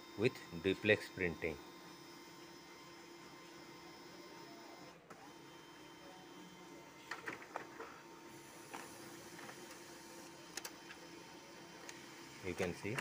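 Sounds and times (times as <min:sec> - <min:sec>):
printer mechanism hum: 0:00.0 - 0:13.0
printer paper feed clicks: 0:11.8 - 0:13.0.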